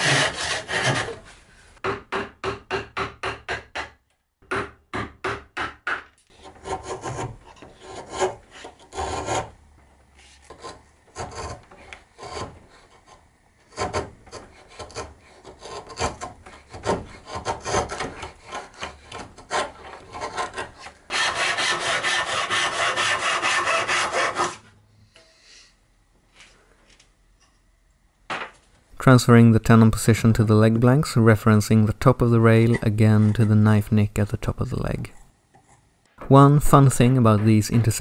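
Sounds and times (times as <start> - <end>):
continuous rasping: 0.0 - 1.2, 10.3 - 24.6
chisel scraping wood: 0.0 - 1.3, 5.9 - 9.6, 10.2 - 24.6, 32.5 - 33.7.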